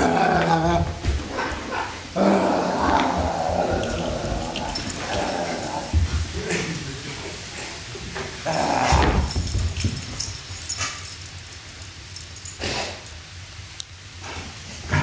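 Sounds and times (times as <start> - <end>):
dog vocalising: 2.6 - 6.0.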